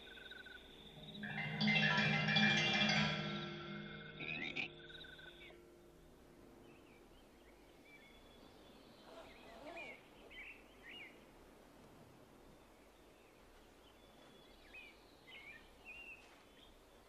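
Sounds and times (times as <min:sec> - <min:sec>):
bird chirps: 0:00.0 - 0:11.2.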